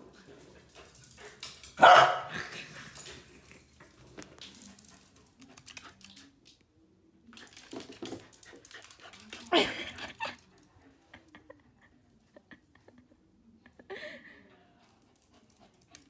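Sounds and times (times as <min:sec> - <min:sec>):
dog barking: 0:01.8 - 0:02.5.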